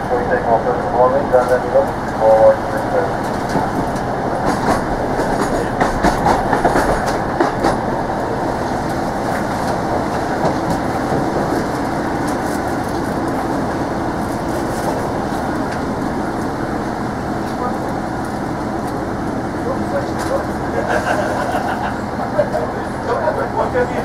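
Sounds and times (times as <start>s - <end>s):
train wheels rumbling on rail: 0.0s - 24.0s
train wheels clicking and clattering: 1.4s - 16.5s.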